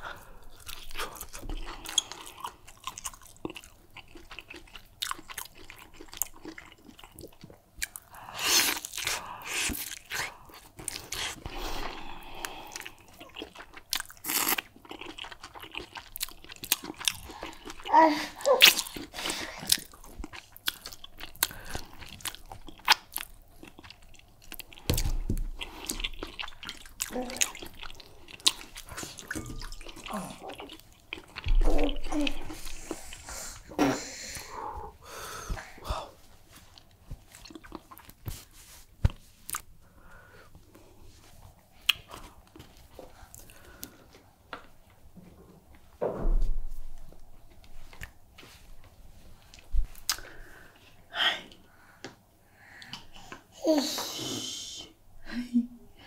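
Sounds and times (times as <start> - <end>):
biting and chewing meat: 0.6 - 11.4, 12.8 - 17.9.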